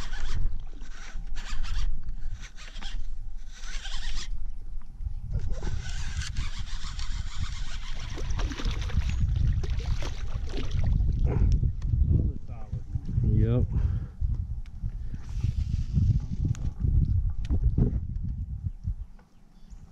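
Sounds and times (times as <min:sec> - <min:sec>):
fishing reel ticking: 0:00.0 - 0:04.6, 0:05.4 - 0:09.3.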